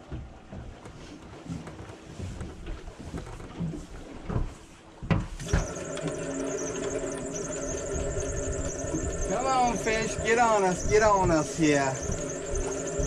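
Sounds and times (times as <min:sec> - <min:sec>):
machinery whine: 0:05.5 - 0:13.0.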